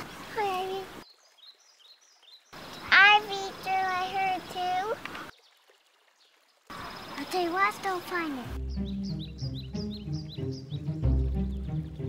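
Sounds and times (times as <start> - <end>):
faint bird chirps: 8.6 - 12.0.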